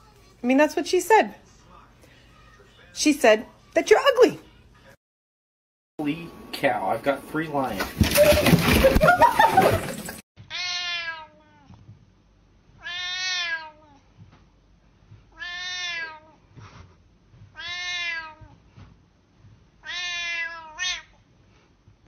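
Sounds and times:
cat meowing: 0:10.5 - 0:11.7, 0:12.8 - 0:14.0, 0:15.3 - 0:16.4, 0:17.6 - 0:18.6, 0:19.8 - 0:21.2.

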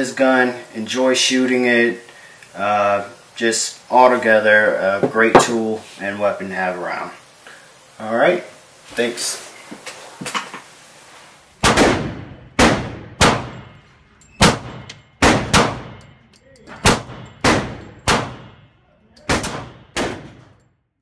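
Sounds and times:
pistol shots echoing indoors: 0:11.6 - 0:20.6.

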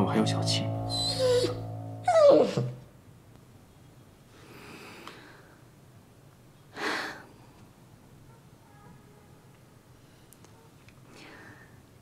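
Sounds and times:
dog whining: 0:00.9 - 0:02.8.

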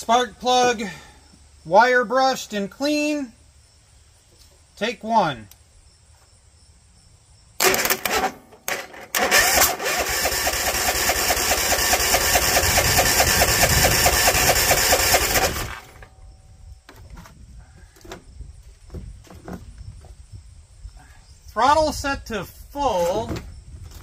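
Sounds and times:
engine cranking with electric starter: 0:07.6 - 0:16.1.

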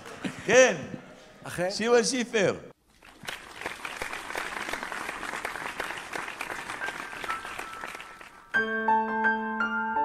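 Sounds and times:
audience applauding: 0:02.9 - 0:08.6.

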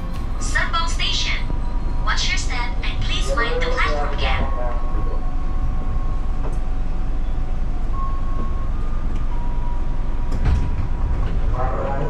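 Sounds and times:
electric train rumbling: 0:00.0 - 0:12.0.

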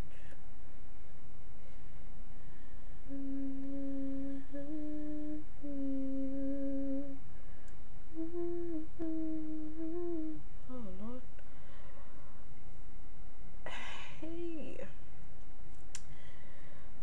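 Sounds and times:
woman humming: 0:03.0 - 0:07.2, 0:08.1 - 0:11.4.

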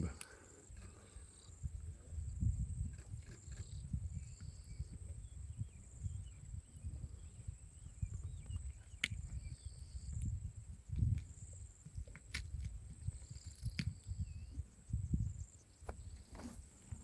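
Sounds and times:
faint chirps: 0:00.0 - 0:02.4
insect-like hum: 0:00.0 - 0:17.0.

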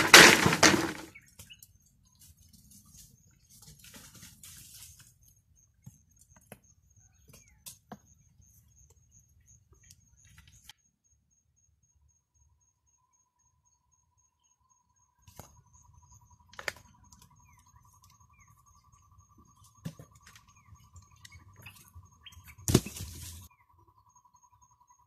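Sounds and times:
wooden pole clattering: 0:00.0 - 0:01.2
rustling: 0:02.2 - 0:05.2.

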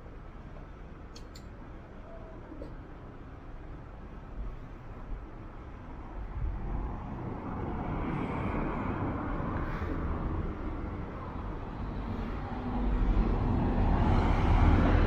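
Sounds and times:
motor vehicle passing by: 0:06.6 - 0:15.0.

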